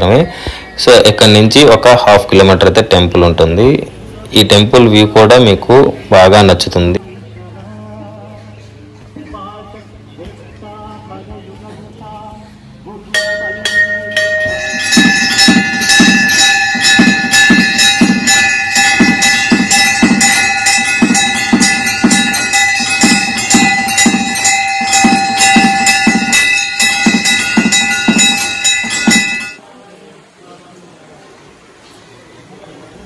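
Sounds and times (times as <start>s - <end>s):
drum beating: 13.2s - 29.6s
temple bells ringing: 13.2s - 29.6s.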